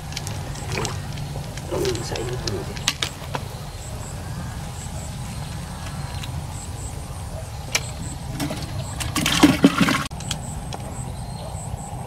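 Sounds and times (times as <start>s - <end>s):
steady low rumble: 0.0s - 9.2s.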